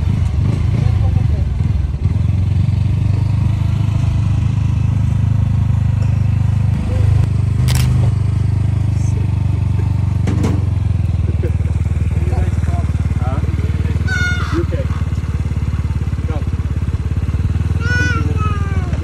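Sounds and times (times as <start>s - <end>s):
motorcycle engine idling: 0.0s - 19.0s
sharp clicks: 7.6s - 8.1s.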